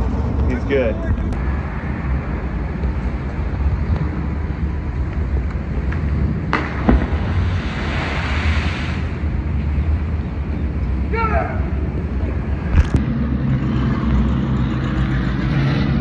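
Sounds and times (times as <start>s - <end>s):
highway traffic rumble: 0.0s - 16.0s
rushing hiss: 7.2s - 9.2s
wind on microphone: 11.7s - 14.5s.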